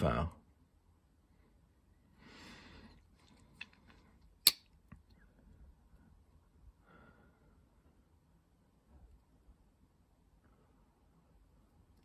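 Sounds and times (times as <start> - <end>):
soft breath: 1.2 - 4.2, 5.2 - 9.3, 10.3 - 11.7.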